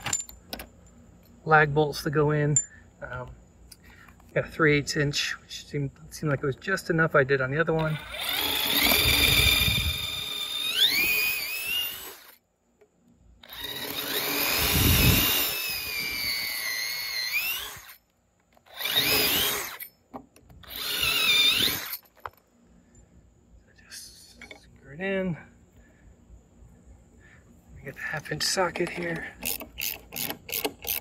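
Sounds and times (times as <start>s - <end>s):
cordless drill boring into wood: 7.8s - 12.4s, 13.4s - 18.0s, 18.6s - 19.9s, 20.6s - 22.0s, 29.4s - 31.0s.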